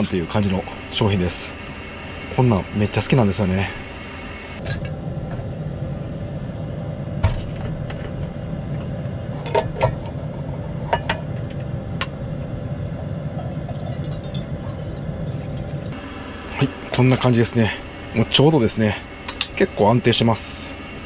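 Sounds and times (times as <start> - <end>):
low hum: 0.0 - 21.0
water pouring into pot: 13.4 - 16.0.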